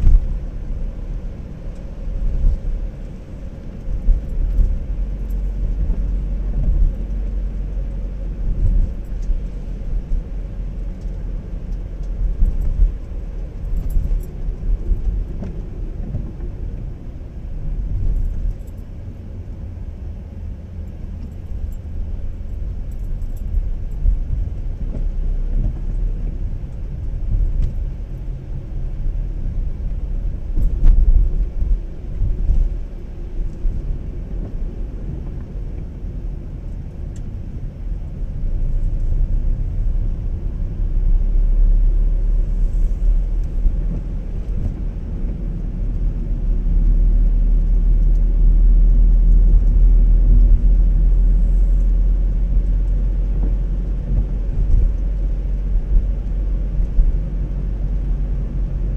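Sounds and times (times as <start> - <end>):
car road and engine rumble: 0.0 - 58.9.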